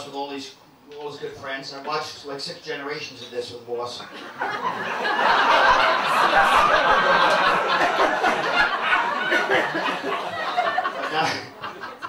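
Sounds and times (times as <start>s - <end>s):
audience laughing: 4.0s - 12.0s.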